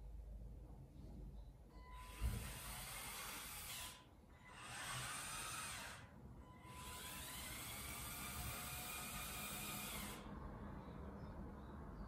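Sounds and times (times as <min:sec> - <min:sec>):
toy electric motors whirring: 0:02.0 - 0:10.3.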